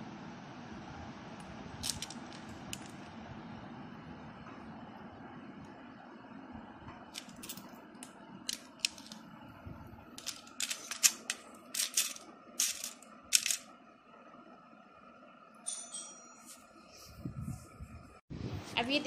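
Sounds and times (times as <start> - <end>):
plastic pieces clicking and rattling: 1.8 - 3.0, 7.2 - 9.2, 10.2 - 13.7.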